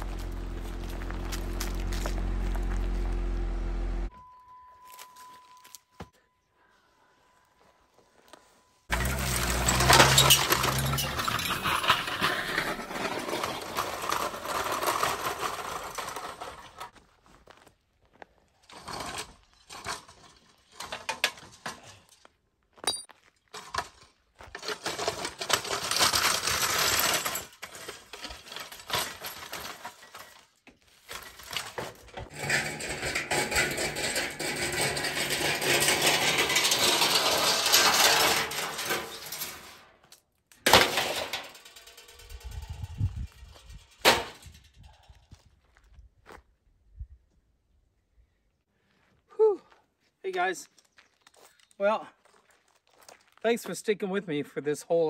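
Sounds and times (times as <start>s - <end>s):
metal clattering and clanking: 8.9s - 16.9s, 22.9s - 39.9s, 40.6s - 45.1s.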